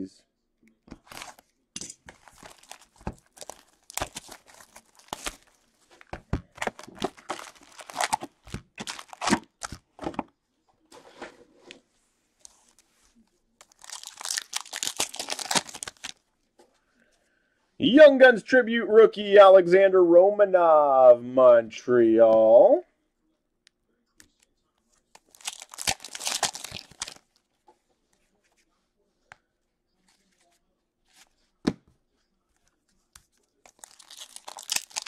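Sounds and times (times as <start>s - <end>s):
card packs ripping open: 1.0s - 1.4s, 2.1s - 5.7s, 6.5s - 9.8s, 13.6s - 16.2s, 25.2s - 27.3s, 33.7s - 35.0s
wrapper and cardboard crinkling: 1.0s - 1.4s, 2.1s - 9.9s, 13.6s - 16.2s, 25.2s - 27.4s, 33.6s - 35.0s.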